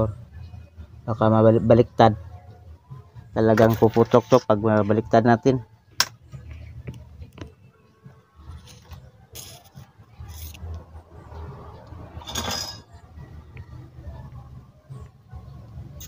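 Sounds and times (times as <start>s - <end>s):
scrapes and clinks of handling: 8.6s - 10.6s, 12.2s - 13.0s.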